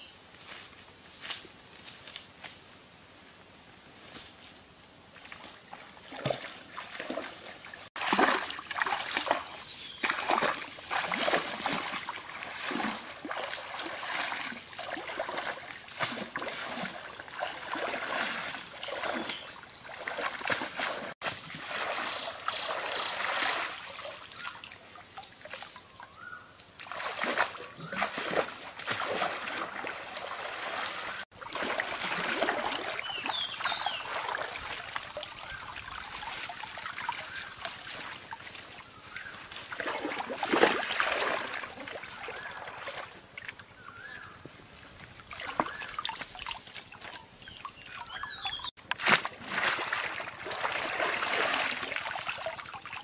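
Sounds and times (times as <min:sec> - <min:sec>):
water splashing in stream: 0:05.2 - 0:53.0
water trickling: 0:28.9 - 0:44.0, 0:45.0 - 0:48.7.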